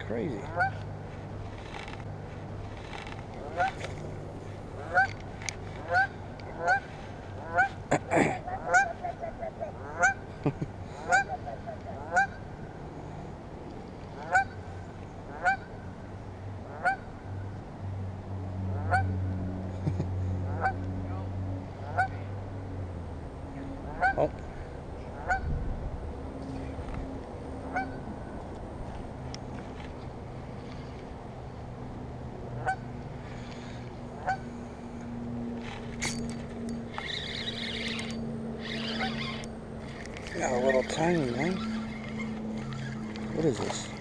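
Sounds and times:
goose honking: 0:00.5 - 0:00.8, 0:03.4 - 0:03.9, 0:04.8 - 0:05.2, 0:05.8 - 0:07.8, 0:08.5 - 0:10.2, 0:11.0 - 0:12.4, 0:14.2 - 0:14.6, 0:15.3 - 0:15.7, 0:16.7 - 0:17.0, 0:21.9 - 0:22.2, 0:23.9 - 0:24.3, 0:25.2 - 0:25.5, 0:27.7 - 0:28.0, 0:34.2 - 0:34.4.

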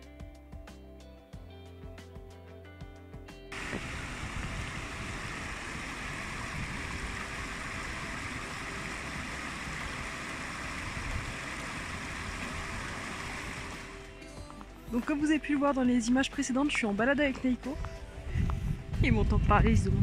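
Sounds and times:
stream babbling over stones: 0:03.6 - 0:13.9.

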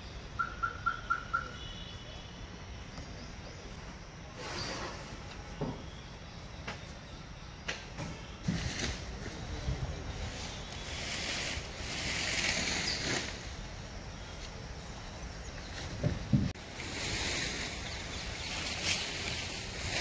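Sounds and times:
outdoor hiss: 0:01.5 - 0:20.0.

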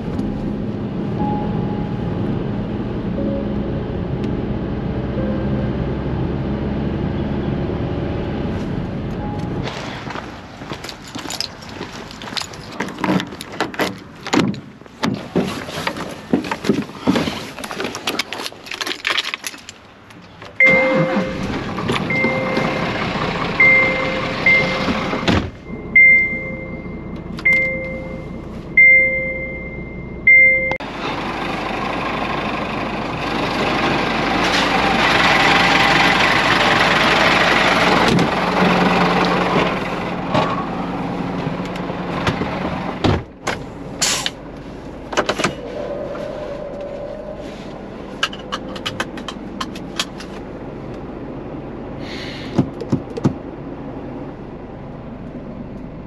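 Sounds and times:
high electronic warning beeps: 0:20.6 - 0:21.5, 0:22.1 - 0:22.8, 0:23.6 - 0:24.9, 0:25.6 - 0:28.2, 0:28.8 - 0:30.8.

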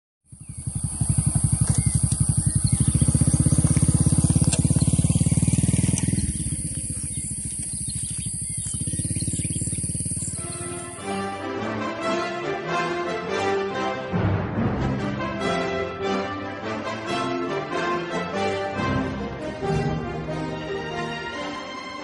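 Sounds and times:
small engine running: 0:00.3 - 0:11.4.

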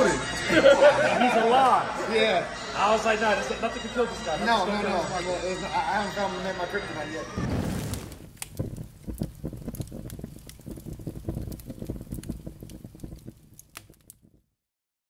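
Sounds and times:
sharp pops: 0:07.4 - 0:14.5
fire crackling rumble: 0:07.4 - 0:14.6.

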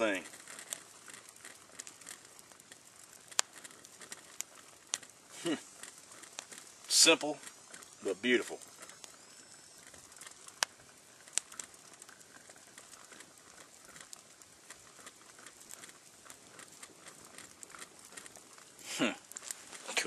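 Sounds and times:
campfire crackling: 0:00.0 - 0:20.0
coffee pot percolating: 0:00.0 - 0:20.0
sharp pops from fire: 0:00.0 - 0:20.0.

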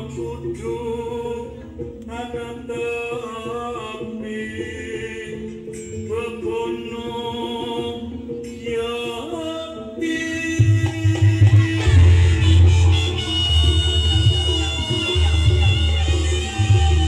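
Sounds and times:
music with sliding vocals: 0:00.0 - 0:17.0
loud bass: 0:10.6 - 0:17.0.

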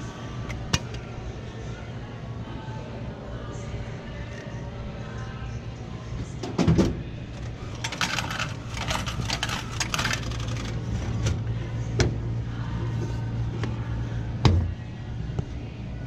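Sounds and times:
steady low hum: 0:00.0 - 0:16.0
rattling in vending machine slot: 0:06.4 - 0:11.4.

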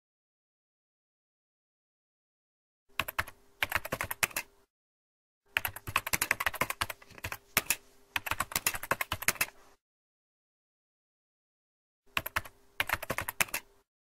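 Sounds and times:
keyboard typing: 0:03.0 - 0:04.5, 0:05.5 - 0:09.6, 0:12.1 - 0:13.8.

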